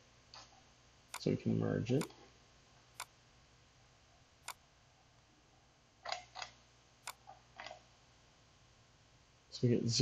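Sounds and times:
faint room hiss: 0.0s - 10.0s
computer mouse clicks: 1.1s - 1.3s, 6.0s - 7.8s.

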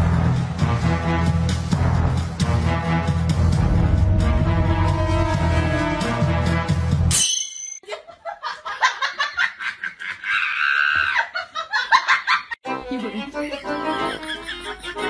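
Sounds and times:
burst of music: 0.0s - 7.1s
accordion music: 12.6s - 15.0s
person laughing: 13.7s - 15.0s.

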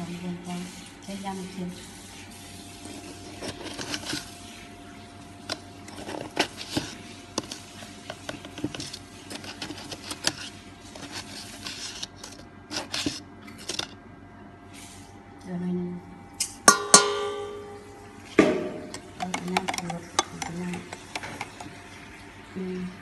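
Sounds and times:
faint steady hum: 2.6s - 23.0s.

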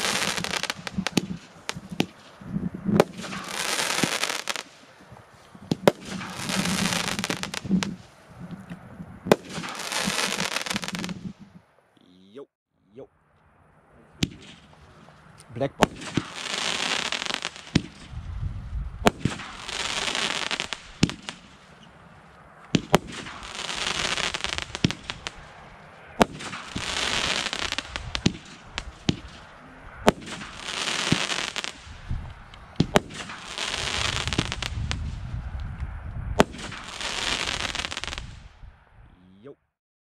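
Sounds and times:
firework crackling: 0.0s - 8.2s, 9.3s - 11.5s, 15.8s - 18.3s, 18.9s - 35.3s, 36.4s - 38.5s
fireworks launching and bursting: 0.0s - 8.2s, 9.2s - 11.5s, 14.2s - 14.8s, 15.6s - 18.3s, 18.9s - 21.9s, 22.7s - 25.6s, 26.2s - 35.4s, 36.3s - 38.6s.

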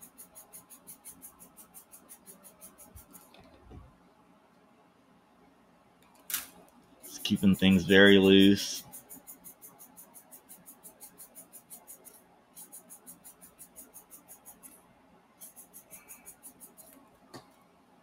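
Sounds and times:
pen feed motor clicking: 8.8s - 14.8s.

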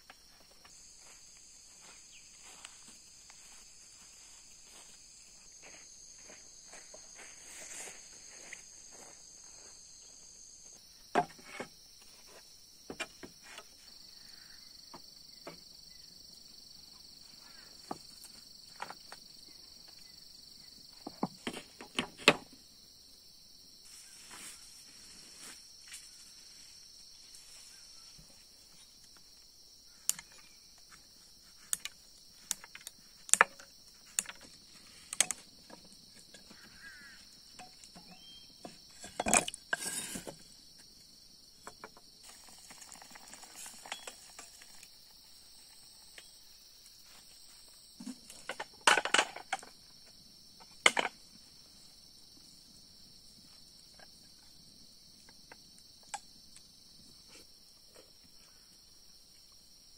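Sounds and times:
footsteps and light knocks: 0.0s - 9.8s
insect chorus: 0.0s - 59.9s.

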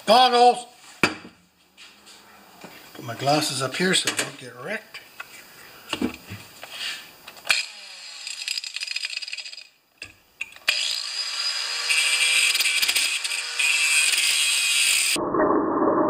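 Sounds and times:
angle grinder cutting metal: 7.5s - 9.7s, 10.6s - 15.2s.

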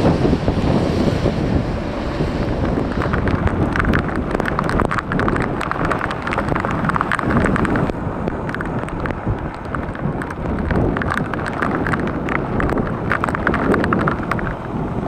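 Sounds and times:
strong wind buffeting microphone: 0.0s - 15.0s
rain taps: 2.0s - 15.0s.

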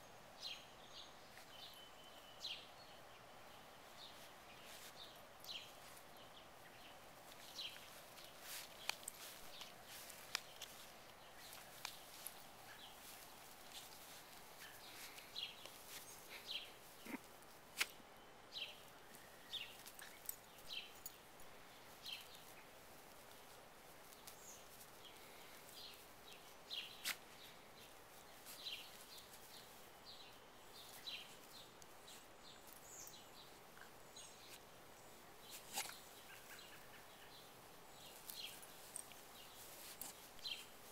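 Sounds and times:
small birds chirping: 0.0s - 40.9s
faint sharp clicks: 8.7s - 10.8s.

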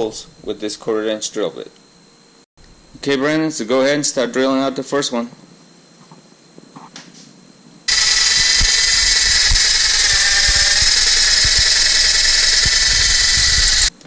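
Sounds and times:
cordless drill drilling: 7.9s - 14.0s.

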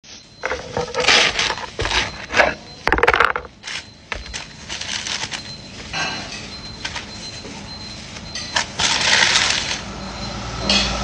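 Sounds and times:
bread crust crackling and crunching: 3.6s - 5.4s.

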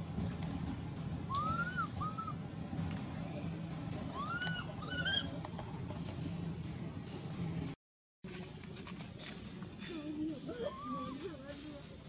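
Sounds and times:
low background hum: 0.0s - 12.0s
baby monkey coo cries: 1.3s - 2.4s, 4.2s - 5.3s, 10.5s - 11.2s.

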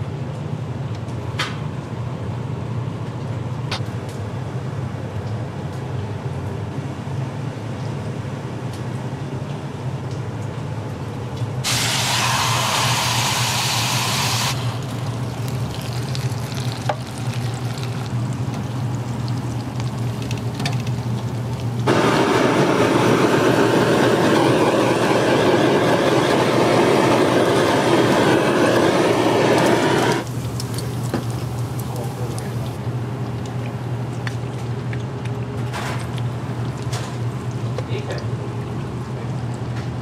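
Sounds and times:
loud even hiss: 11.6s - 15.0s, 21.9s - 30.4s
kitchen equipment humming: 11.6s - 40.0s.

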